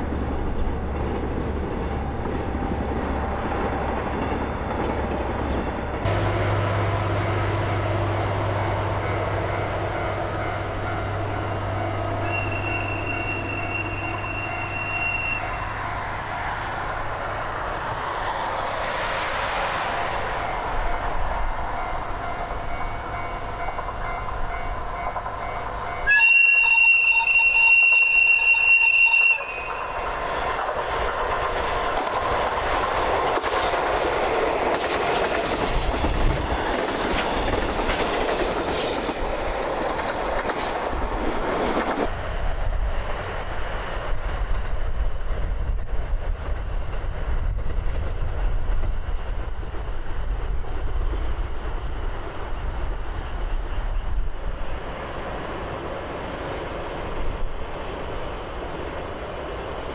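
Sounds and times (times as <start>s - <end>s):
diesel locomotive engine: 0.0s - 59.9s
locomotive horn blast: 6.1s - 16.4s, 26.0s - 30.0s
wheels clicking over rail joints: 29.4s - 42.2s.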